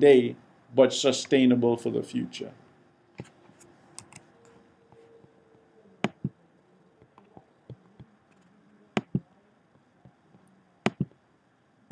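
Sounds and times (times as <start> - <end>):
faint steady hum: 0.0 - 11.9
computer mouse clicks: 3.2 - 4.3.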